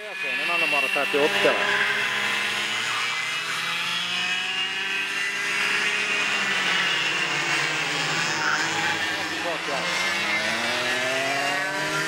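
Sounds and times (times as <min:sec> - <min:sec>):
go-kart engine running: 0:00.0 - 0:12.0.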